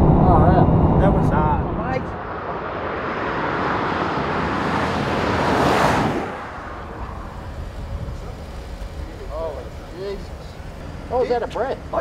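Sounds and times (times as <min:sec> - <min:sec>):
car passing at speed: 0:00.0 - 0:09.5.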